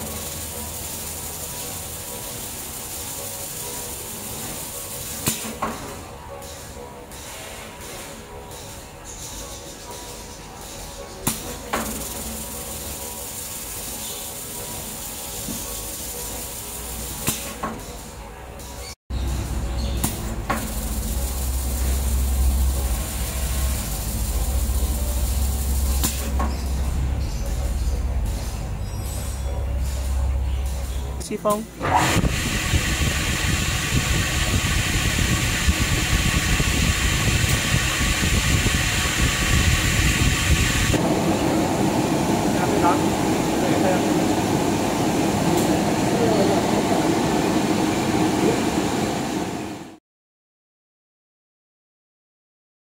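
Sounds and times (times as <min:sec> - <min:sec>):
low machine hum: 0:19.1 - 0:49.9.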